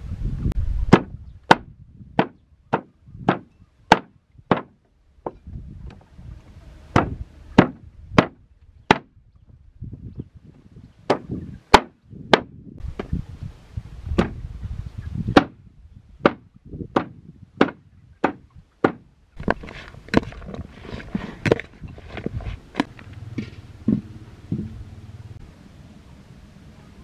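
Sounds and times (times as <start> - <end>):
rustling: 19.4 - 24.8.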